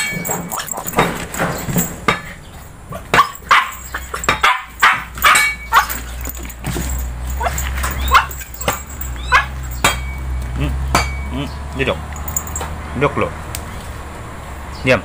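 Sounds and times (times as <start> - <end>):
husky barking and yipping: 0.0 - 10.8.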